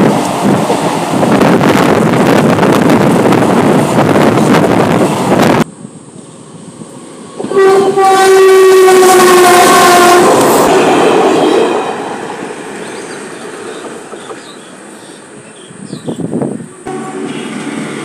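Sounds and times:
freight train passing: 0:00.0 - 0:18.0
locomotive horn blast: 0:07.4 - 0:12.1, 0:16.8 - 0:18.0.

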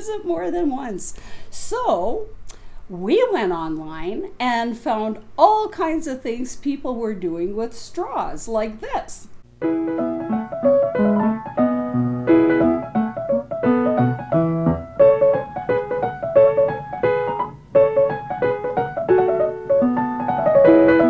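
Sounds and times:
piano music: 0:09.4 - 0:21.0.

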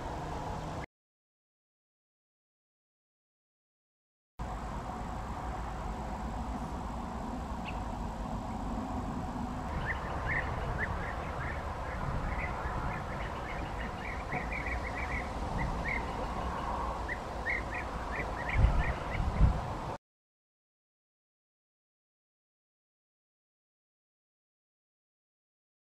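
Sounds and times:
steady low rumble: 0:04.4 - 0:20.0
birds giving rolling calls: 0:06.5 - 0:19.8.

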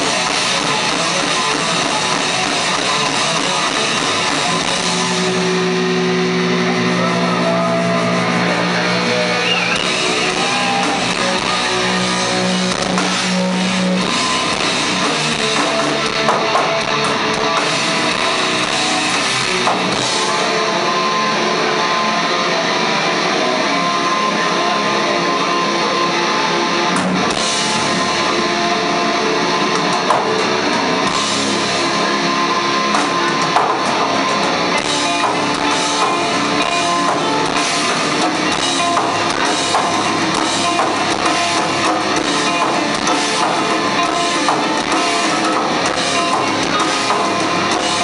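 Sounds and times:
drum and cymbal hits: 0:00.0 - 0:20.7, 0:32.9 - 0:48.0
metal band playing live: 0:00.0 - 0:48.0.

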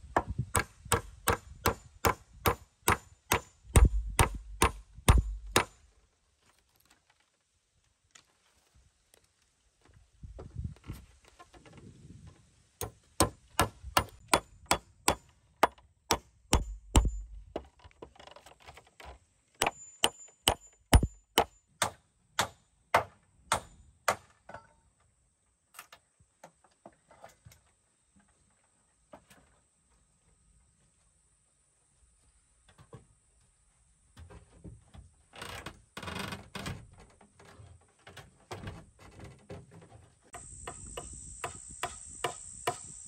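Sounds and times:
hammer striking nails into wood: 0:00.2 - 0:05.8, 0:12.8 - 0:17.6, 0:19.6 - 0:24.3.

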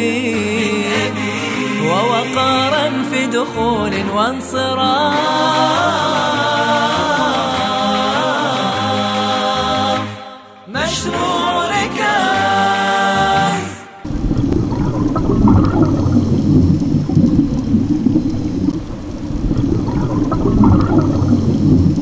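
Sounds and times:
unaccompanied sung chant: 0:00.0 - 0:17.1.

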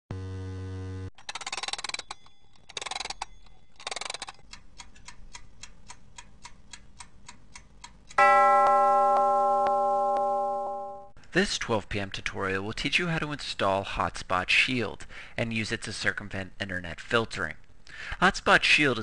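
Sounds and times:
rapid clock clicking: 0:01.2 - 0:09.8
clock ticking: 0:03.8 - 0:11.0
loud bell chime: 0:08.2 - 0:11.2.

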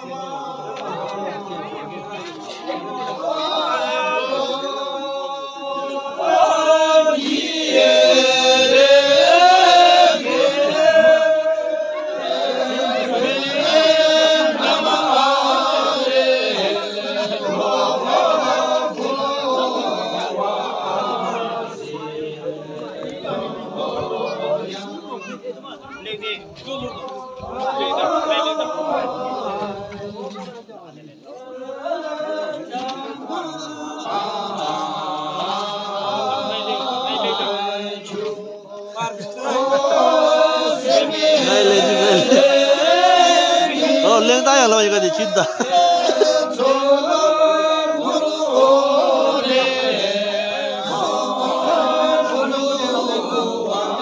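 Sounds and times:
group chanting prayers: 0:00.0 - 0:54.0.

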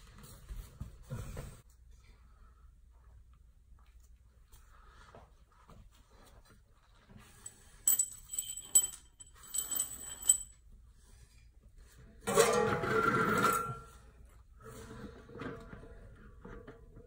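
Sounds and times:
metal tools clinking: 0:07.4 - 0:10.6
metal jack scraping on concrete: 0:12.3 - 0:13.9.

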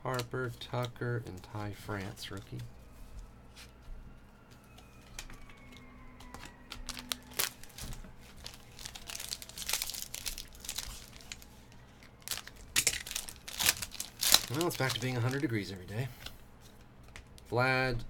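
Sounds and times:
foil wrapper tearing and crinkling: 0:06.7 - 0:11.5, 0:12.1 - 0:15.8.

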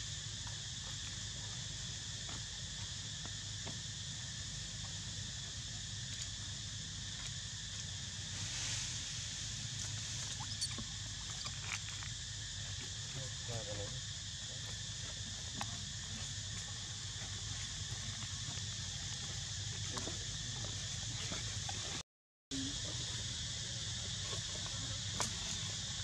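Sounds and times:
insects buzzing: 0:00.0 - 0:26.0.

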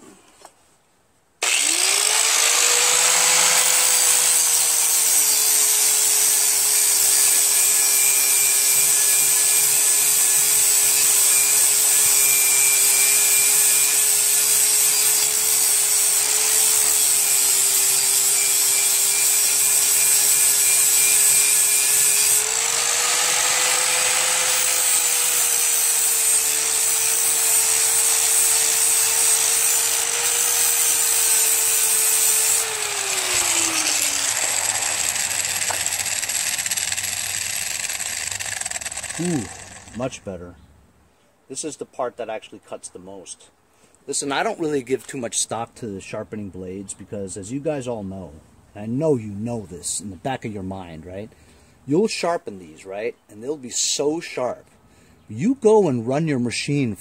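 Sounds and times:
angle grinder motor whine: 0:01.4 - 0:40.0.

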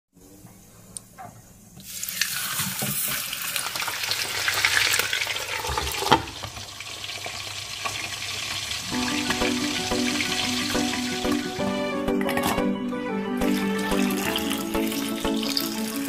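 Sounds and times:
oil sizzling in a frying pan: 0:01.8 - 0:11.5, 0:13.5 - 0:16.0.

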